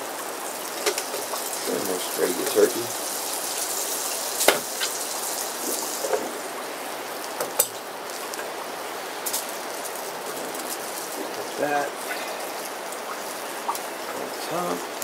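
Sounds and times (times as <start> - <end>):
butter sizzling in a frying pan: 0.0 - 15.0
sharp knocks: 4.4 - 4.7.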